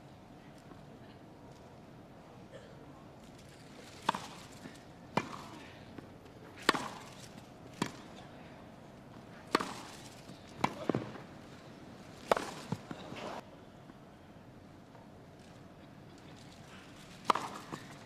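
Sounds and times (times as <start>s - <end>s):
tennis ball bouncing on grass: 4.0s - 5.6s, 6.6s - 8.2s, 9.4s - 11.3s, 12.2s - 13.0s, 17.2s - 18.0s
tennis racket striking ball: 4.0s - 5.6s, 6.6s - 8.2s, 9.4s - 11.2s, 12.2s - 13.4s, 17.2s - 18.0s.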